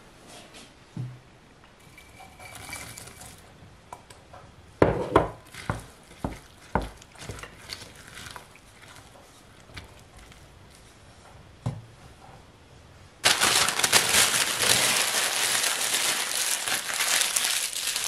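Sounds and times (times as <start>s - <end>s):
spoon stirring thick batter: 5.4s - 11.2s.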